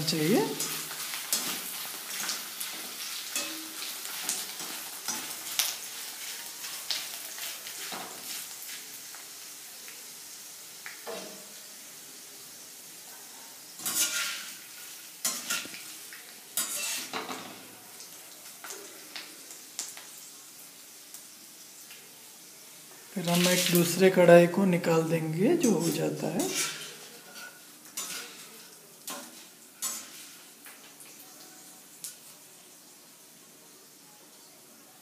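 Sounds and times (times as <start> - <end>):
food sizzling in hot oil: 0.0 - 35.0
metal spoon scraping a pan: 0.5 - 8.6, 13.8 - 15.9, 16.6 - 17.6, 25.6 - 30.5.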